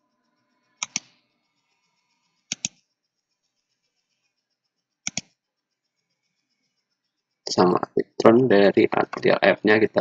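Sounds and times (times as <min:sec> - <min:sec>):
computer mouse buttons clicking: 0:00.8 - 0:01.2, 0:02.5 - 0:02.8, 0:05.0 - 0:05.4.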